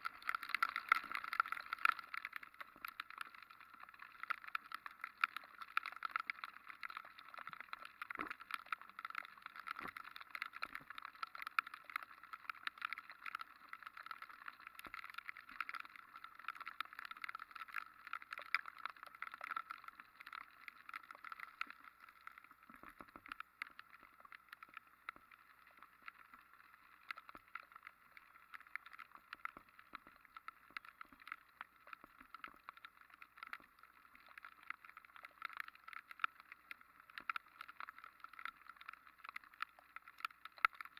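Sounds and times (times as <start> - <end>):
rain pattering on camera: 0.0 - 40.9.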